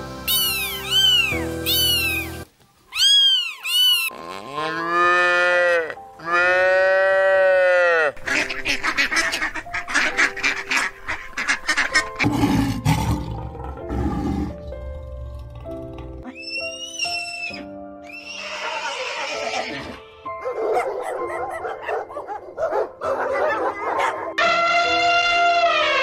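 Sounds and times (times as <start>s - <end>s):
light background music: 0.0s - 2.5s, 4.4s - 26.0s
cow mooing: 4.1s - 8.2s.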